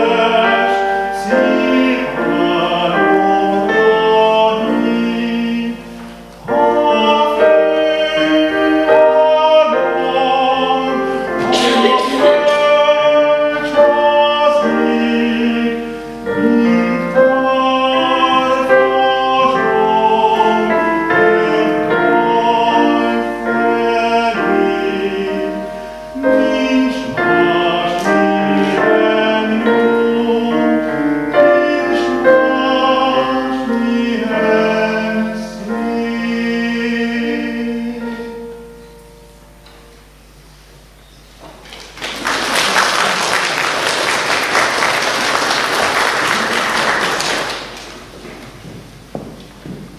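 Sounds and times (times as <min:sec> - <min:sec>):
man singing operatically: 0:00.0 - 0:38.6
piano accompaniment: 0:00.0 - 0:49.9.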